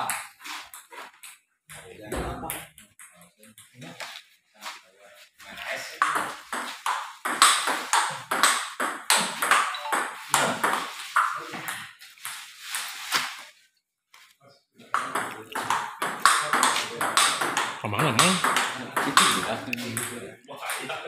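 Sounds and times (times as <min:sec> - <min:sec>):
table tennis ball hits: 0:06.0 - 0:11.8, 0:14.9 - 0:21.0.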